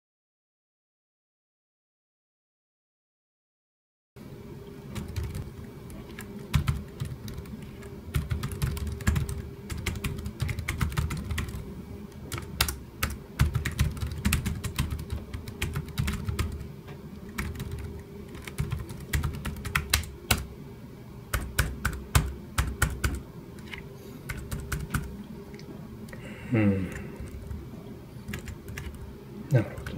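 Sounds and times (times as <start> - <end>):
laptop keyboard typing: 4.9 - 11.6, 12.3 - 20.5, 21.3 - 25.1, 26.9 - 27.6, 28.2 - 29.1.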